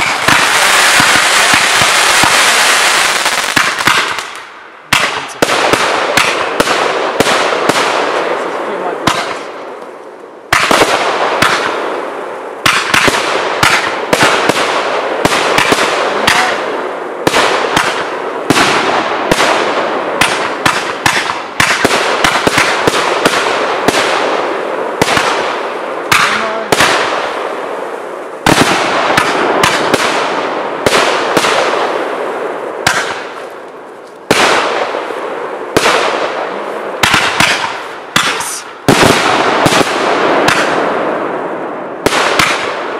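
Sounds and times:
firework shells bursting: 37.0s - 40.8s.

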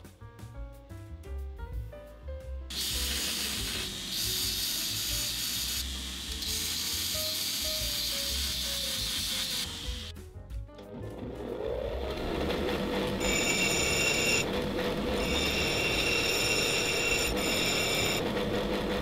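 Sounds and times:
bench grinder humming: 2.7s - 10.1s, 11.2s - 19.0s
steel rod grinding on wheel: 12.1s - 18.2s.

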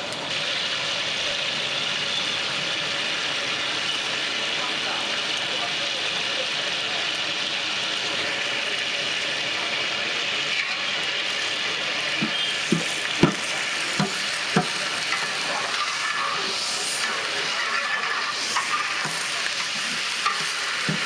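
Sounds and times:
ladle stirring water in pot: 12.2s - 21.0s.

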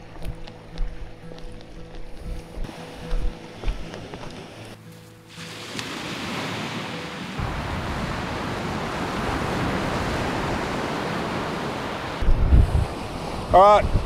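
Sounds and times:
surf breaking on a beach: 5.3s - 14.0s.

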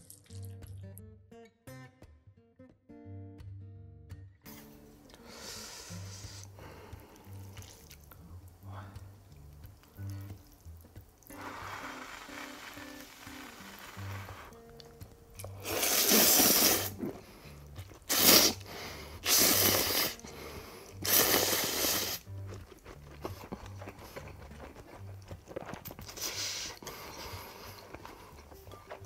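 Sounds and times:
person slurping noodles: 5.3s - 9.0s, 11.2s - 14.6s, 15.4s - 25.1s, 25.9s - 28.9s
chewing: 6.4s - 29.0s
background music with bass line: 22.1s - 29.0s.

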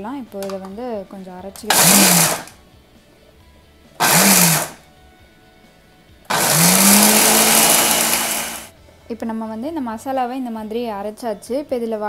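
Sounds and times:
blender motor grinding: 1.7s - 2.6s, 4.0s - 4.8s, 6.3s - 8.7s.

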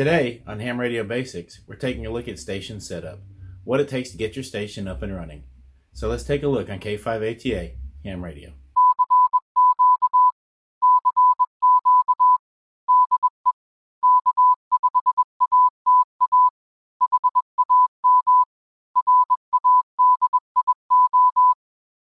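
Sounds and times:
morse code beeps: 8.8s - 21.6s.

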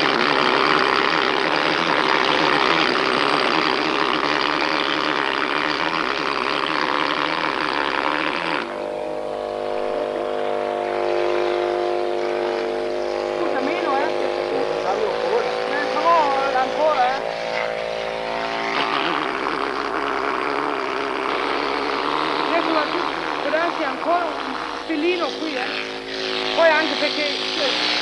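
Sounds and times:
pneumatic tool on stone: 18.7s - 28.0s.

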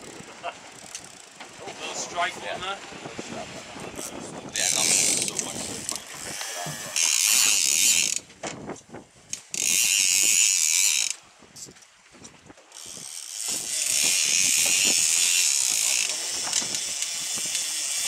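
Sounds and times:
fishing reel drag buzzing: 0.0s - 1.4s, 4.0s - 8.3s, 9.4s - 11.2s, 12.7s - 18.0s.

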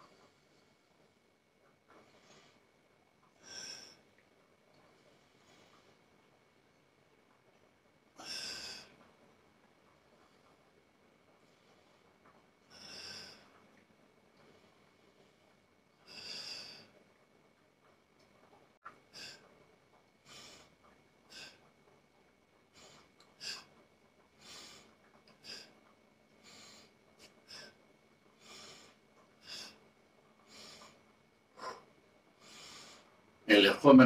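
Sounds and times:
man breathing forcefully: 8.2s - 9.0s, 12.7s - 13.6s, 16.1s - 16.9s, 19.1s - 19.4s, 20.2s - 20.7s, 21.3s - 21.7s, 22.7s - 23.7s, 24.4s - 25.8s, 26.4s - 27.8s, 28.4s - 29.8s, 30.5s - 33.1s.

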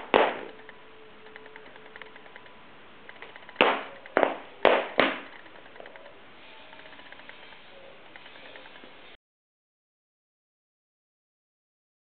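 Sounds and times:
child stomping on wooden floor: 0.0s - 0.5s, 3.6s - 5.3s.

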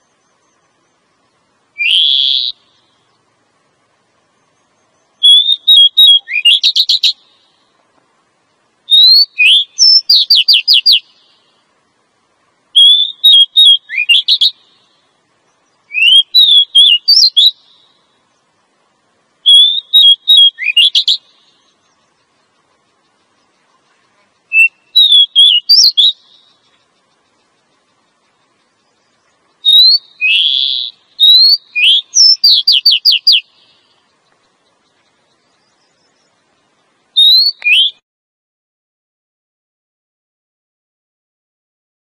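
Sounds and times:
bird calling with whistles: 1.8s - 3.2s, 4.4s - 7.6s, 8.9s - 11.6s, 12.8s - 18.0s, 19.4s - 36.3s, 37.2s - 38.0s.

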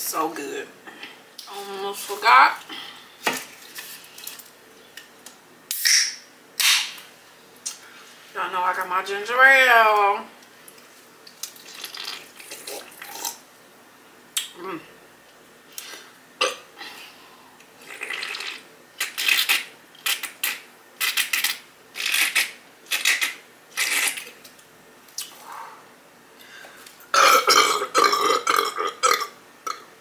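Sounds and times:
woman gulping soda: 11.5s - 13.4s
woman burping loudly: 16.4s - 16.7s, 27.1s - 29.9s.

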